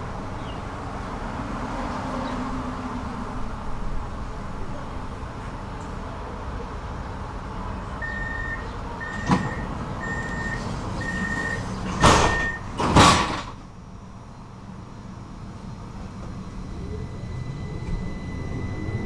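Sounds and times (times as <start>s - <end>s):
tram doors shutting: 0.0s - 19.0s
high warning beeps: 3.6s - 6.6s, 7.2s - 12.7s, 16.5s - 19.0s.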